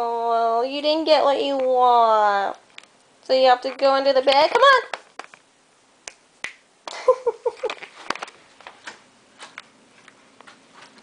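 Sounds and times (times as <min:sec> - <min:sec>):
clicks and rustles: 0:02.6 - 0:05.5, 0:07.5 - 0:11.0.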